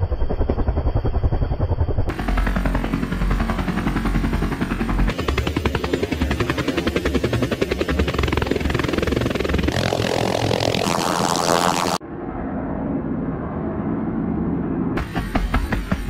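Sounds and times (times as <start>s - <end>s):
helicopter rotor chopping: 0.0s - 12.0s, 15.0s - 16.0s.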